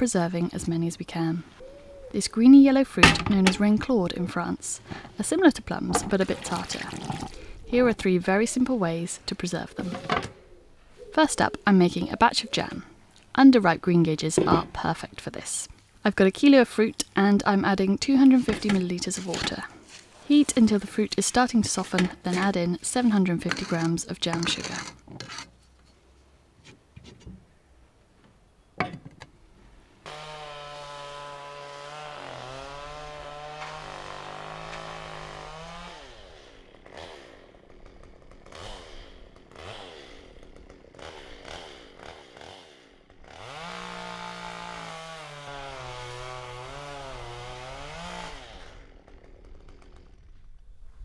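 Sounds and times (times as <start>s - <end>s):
chainsaw running at high revs: 30.0s - 50.4s.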